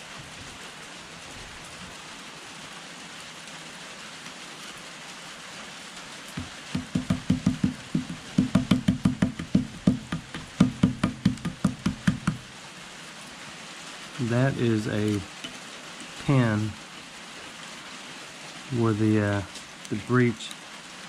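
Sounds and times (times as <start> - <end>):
steady hiss: 0.0 - 21.0
hand tool chipping metal: 6.4 - 12.4.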